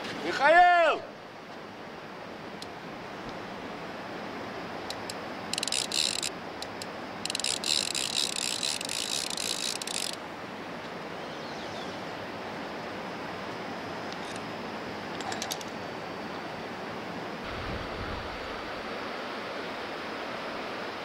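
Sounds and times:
fishing reel ratcheting click: 0:04.9 - 0:10.2.

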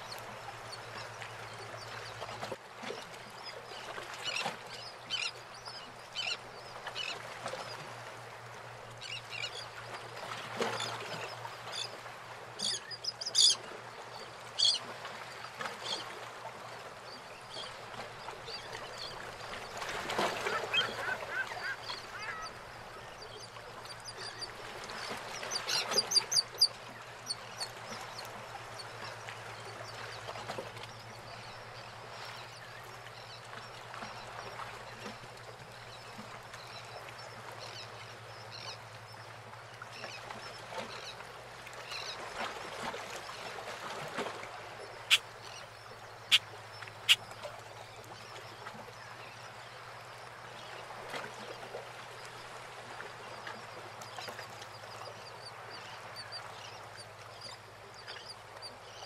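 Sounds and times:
water lapping against boats: 0:00.0 - 0:59.0
birds calling high-pitched: 0:20.6 - 0:22.6.

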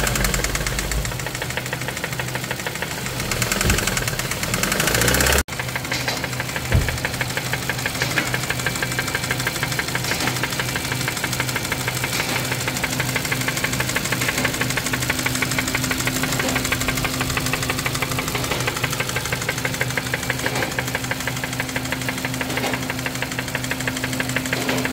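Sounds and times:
car engine idling with ticking clatter: 0:00.0 - 0:24.9
brief thump: 0:03.4 - 0:04.3, 0:06.7 - 0:07.2.

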